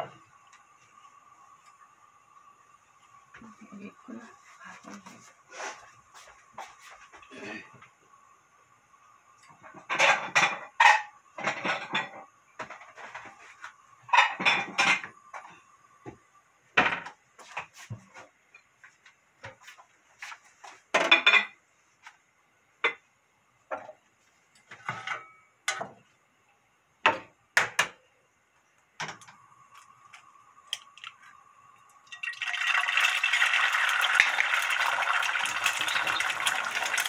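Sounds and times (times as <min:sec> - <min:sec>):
kitchenware clattering: 0:09.5 - 0:13.2, 0:14.0 - 0:15.2, 0:20.9 - 0:21.6, 0:24.6 - 0:26.0.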